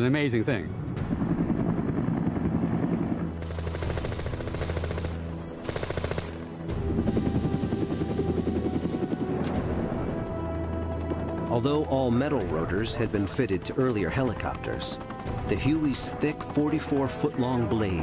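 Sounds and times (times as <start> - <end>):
helicopter drone: 0.6 - 18.0
machine guns firing: 3.3 - 6.6.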